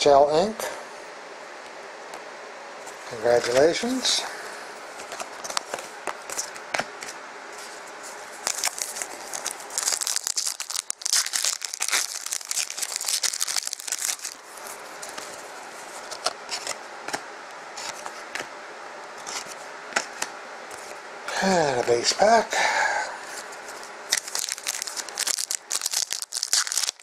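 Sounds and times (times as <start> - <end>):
foil wrapper tearing and crinkling: 8.4 - 14.4, 24.1 - 27.0.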